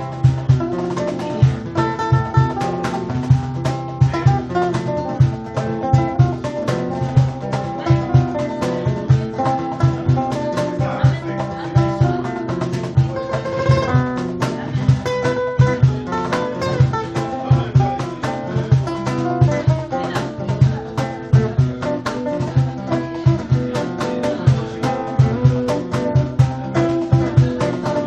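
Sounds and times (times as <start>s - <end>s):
acoustic guitars playing: 0.0s - 28.0s.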